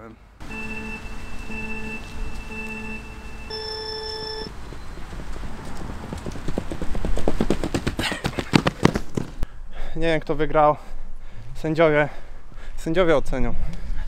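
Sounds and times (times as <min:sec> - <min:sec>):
electronic countdown beeps: 0:00.4 - 0:04.5
running footsteps on rubber track: 0:04.5 - 0:09.5.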